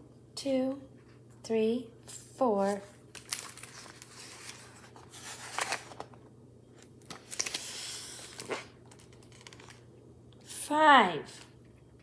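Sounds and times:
paper page rustling: 2.1 - 6.2, 6.8 - 9.8.

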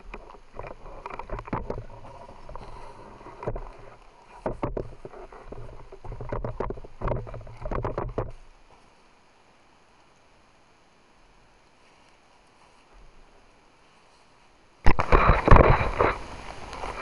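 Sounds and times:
faint steady hiss: 0.0 - 17.0
gusty wind buffeting microphone: 14.9 - 17.0.

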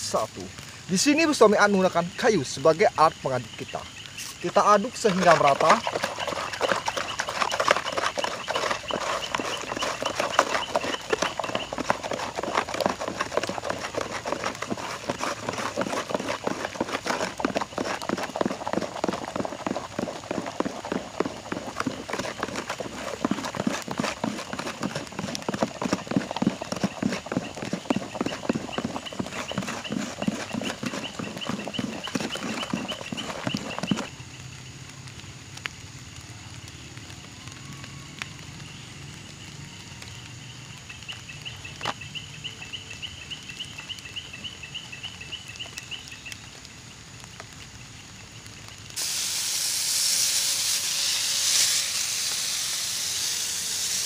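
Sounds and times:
stick stirring water in bucket: 4.2 - 34.1.

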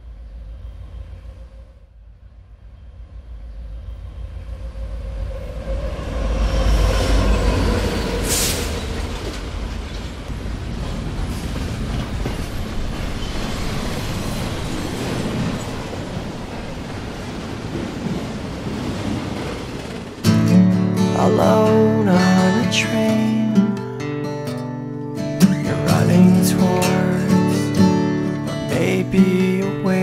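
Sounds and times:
train rumbling on rails: 0.0 - 23.1.

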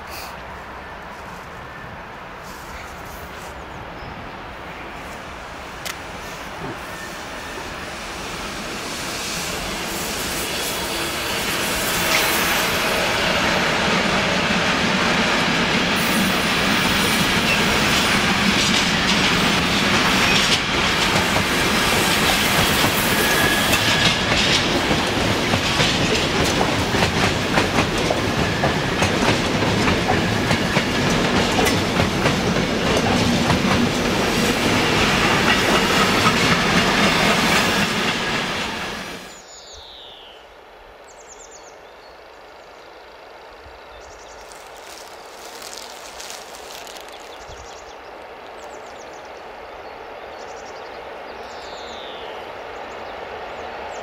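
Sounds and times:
freight train rolling past: 0.4 - 39.5
electric train passing: 0.4 - 39.6
train wheel squeal: 6.5 - 13.1, 21.6 - 24.9, 28.0 - 31.8, 34.4 - 39.5.

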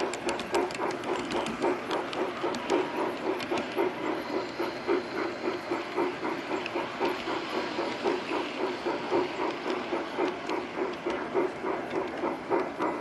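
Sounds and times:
model train rhythmic clacking: 0.0 - 13.0.

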